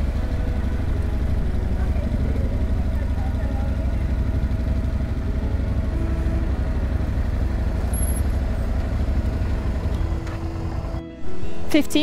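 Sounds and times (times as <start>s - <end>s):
motorcycle engine low rumble: 0.0s - 11.2s.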